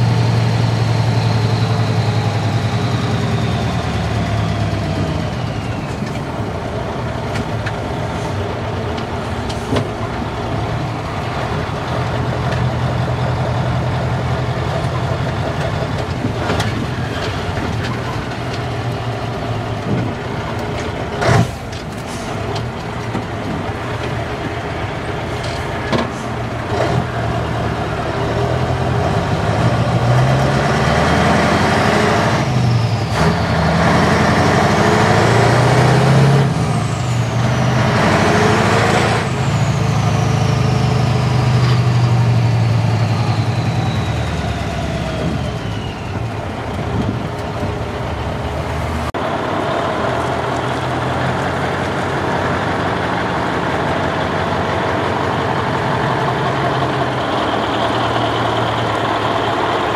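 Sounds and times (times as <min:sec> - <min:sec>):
truck diesel engine accelerating: 0:00.0 - 0:59.9
high whistle gliding: 0:42.8 - 0:46.2.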